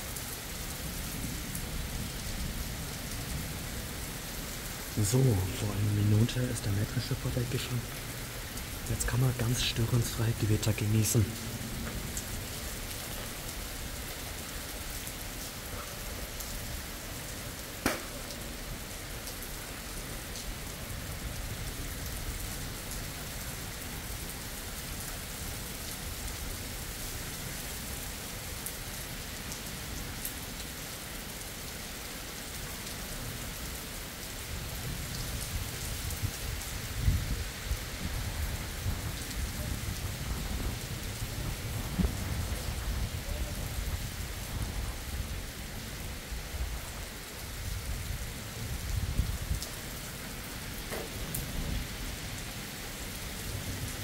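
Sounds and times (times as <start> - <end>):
rain falling on ground: 0.0 - 54.0
sharp tap: 17.8 - 18.2
low rumble of thunder: 34.8 - 47.0.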